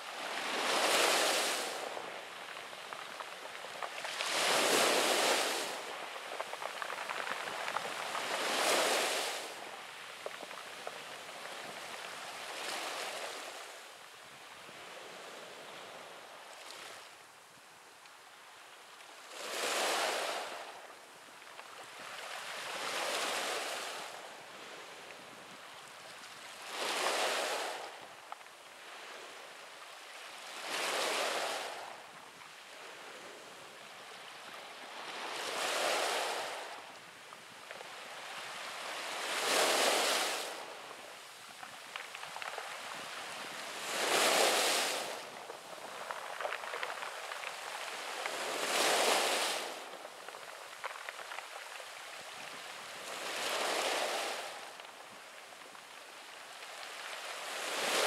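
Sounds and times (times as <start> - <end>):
steady hiss of water: 0.0 - 58.0
sea waves breaking on pebbles: 0.1 - 13.8, 19.3 - 20.7, 26.1 - 28.2, 30.3 - 32.6, 34.2 - 36.9, 37.8 - 58.0.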